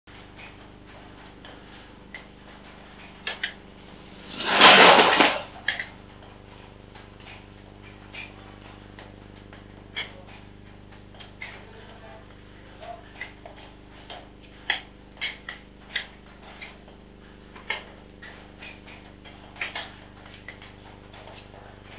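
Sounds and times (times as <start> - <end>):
faint clicks and knocks: 0.1 - 21.9
sharp crack: 3.4 - 5.9
motorbike crash: 4.2 - 5.7.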